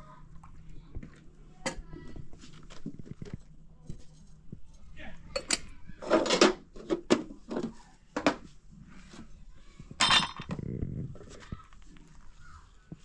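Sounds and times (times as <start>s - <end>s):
dishes and utensils clinking: 5.3s - 8.4s, 10.0s - 10.6s.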